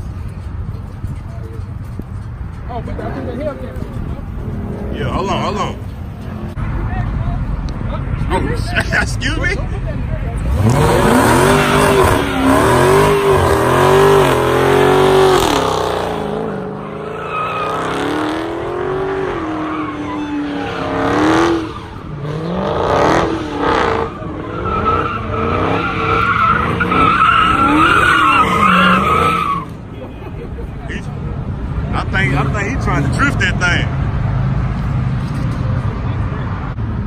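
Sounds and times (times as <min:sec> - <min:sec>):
car engine revving: 0:10.3 - 0:29.7
tire squeal: 0:10.6 - 0:29.9.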